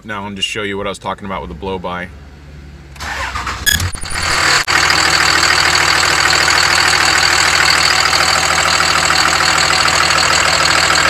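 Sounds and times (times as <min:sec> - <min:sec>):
diesel engine starting and idling: 0:02.3 - 0:11.0.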